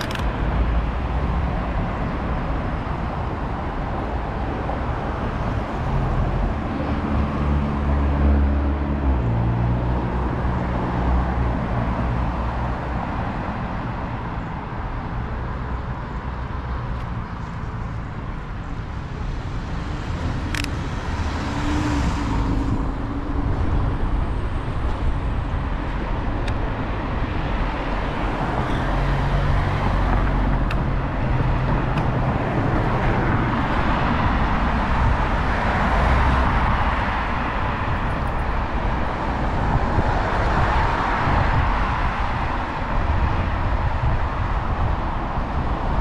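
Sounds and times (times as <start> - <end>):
cars passing: 0.0 - 46.0
road traffic: 0.0 - 46.0
wind on microphone: 19.2 - 46.0.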